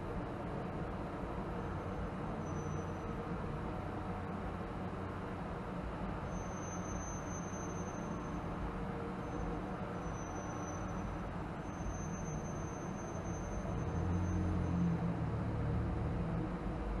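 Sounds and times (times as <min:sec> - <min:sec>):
car road noise in tunnel: 0:00.0 - 0:17.0.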